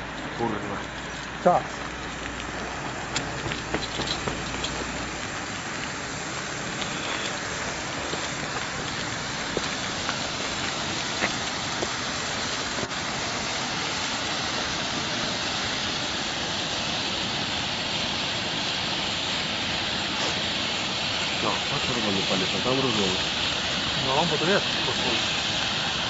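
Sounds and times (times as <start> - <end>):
faint crackles: 0.0 - 13.0
flares burning with hiss: 0.0 - 26.0.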